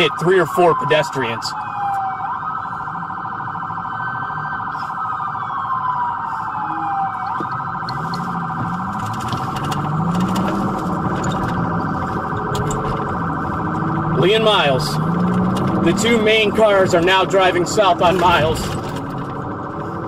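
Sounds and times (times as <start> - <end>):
police siren wailing: 0.0 - 20.0
siren tone pulsing rapidly: 1.5 - 9.1
car engine: 2.4 - 20.0.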